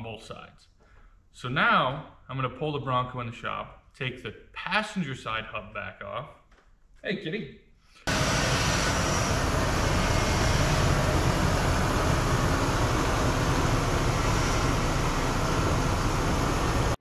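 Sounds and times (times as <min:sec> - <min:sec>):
car engine running: 0:08.1 - 0:17.0
road noise: 0:08.1 - 0:17.0.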